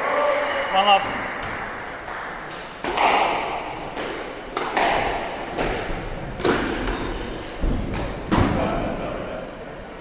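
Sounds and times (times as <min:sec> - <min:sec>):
squash ball knocks: 0:01.1 - 0:08.8.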